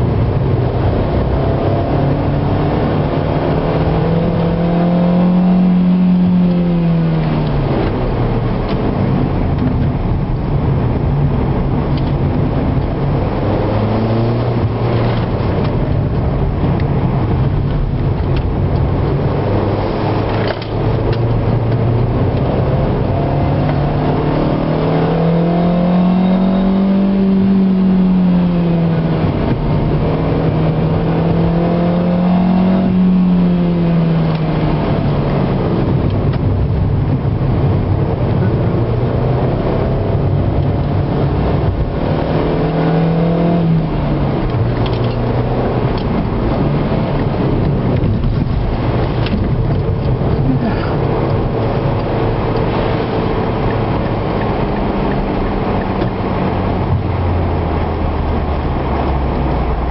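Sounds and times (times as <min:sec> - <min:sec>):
car engine accelerating: 0:00.0 - 0:59.9
tyre and road noise: 0:00.0 - 0:59.9.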